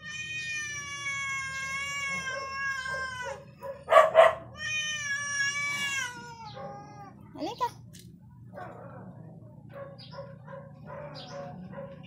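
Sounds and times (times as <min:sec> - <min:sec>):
cat meowing angrily: 0:00.0 - 0:03.6, 0:04.2 - 0:07.2.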